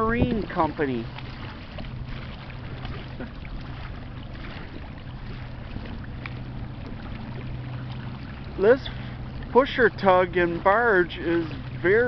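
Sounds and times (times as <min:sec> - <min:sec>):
wind noise: 0:00.0 - 0:00.8
boat diesel engines droning: 0:00.0 - 0:12.0.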